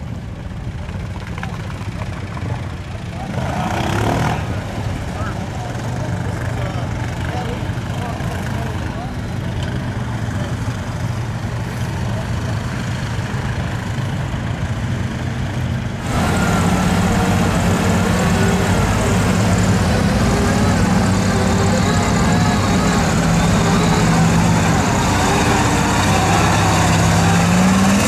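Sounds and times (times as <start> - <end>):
atv engine running: 0.0 - 28.0
suv engine driving through mud: 0.6 - 14.2, 15.9 - 28.0
water and mud splashing: 16.0 - 28.0.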